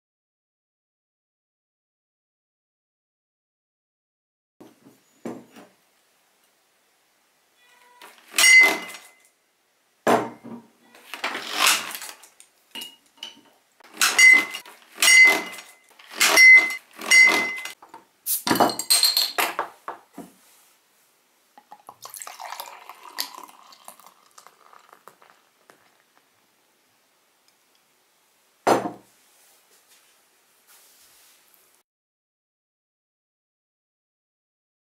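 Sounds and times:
glass bottles clinking: 8.3 - 9.1, 12.8 - 17.8, 18.5 - 19.7, 21.6 - 25.4
beer pouring into glass: 21.6 - 26.3.

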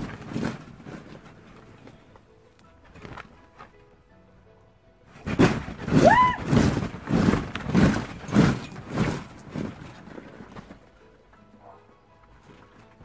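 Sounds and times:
thumps on a trampoline mat: 5.1 - 10.8.

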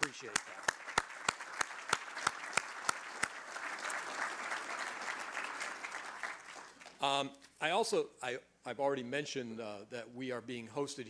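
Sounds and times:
audience applauding: 0.0 - 7.0
close sharp claps: 0.0 - 7.0.

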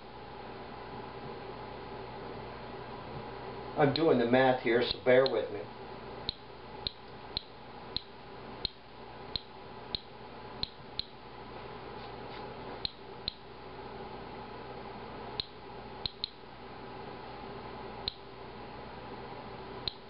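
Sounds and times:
geiger counter clicking: 6.3 - 11.2, 12.8 - 13.4, 15.4 - 16.4, 18.0 - 18.2.

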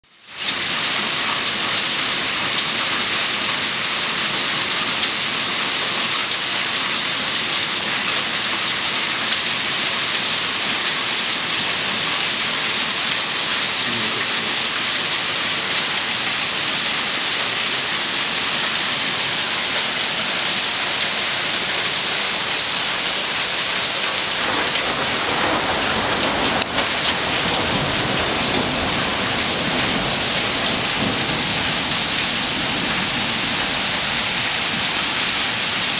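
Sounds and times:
heavy rain and hail on stone: 0.0 - 35.9
thunder rumbling: 23.0 - 35.7.

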